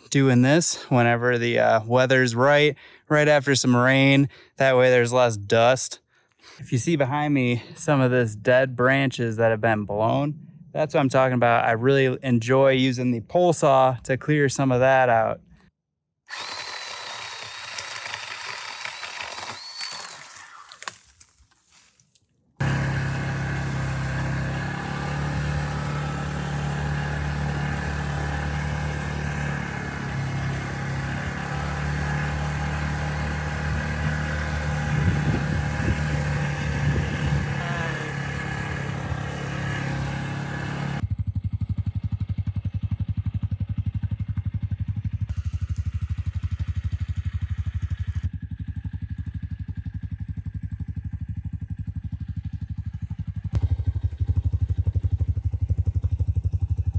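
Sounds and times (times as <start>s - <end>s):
engine idling: 22.6s - 56.9s
quad bike engine running: 22.6s - 56.9s.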